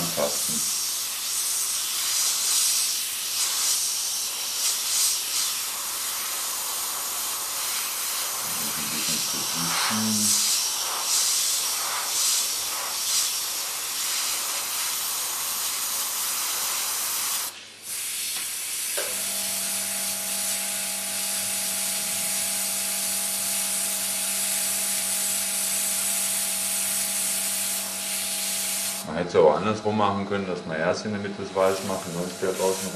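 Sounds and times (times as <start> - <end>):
airbrush hissing: 0.0 - 29.2, 31.6 - 32.9
steady hum: 8.1 - 11.1, 19.0 - 32.9.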